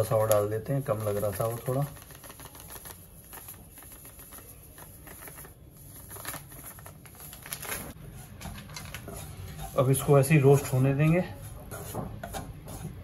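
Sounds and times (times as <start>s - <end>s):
patter of dry grains: 0.0s - 11.9s
spoon scraping a pan: 8.1s - 13.0s.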